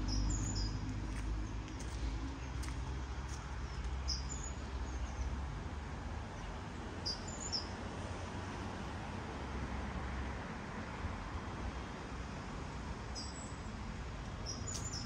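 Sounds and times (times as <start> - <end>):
small birds chirping: 0.0 - 5.3, 14.4 - 15.0.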